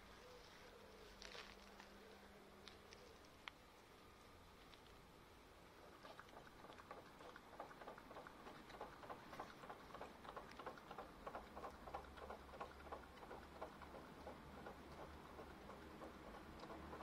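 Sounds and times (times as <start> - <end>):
dog lapping water: 5.8 - 17.0.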